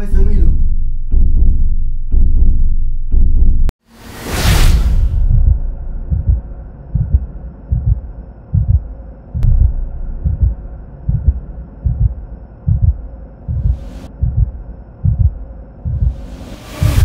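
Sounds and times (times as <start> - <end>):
heartbeat double thump: 0.4 - 3.7, 5.1 - 17.0
faint low drone: 5.2 - 17.0.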